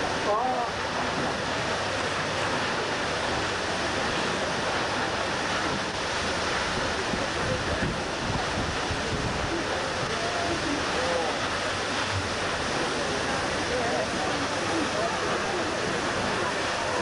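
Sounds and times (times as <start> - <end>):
waterfall rushing: 0.0 - 17.0
wind buffeting microphone: 5.6 - 10.9.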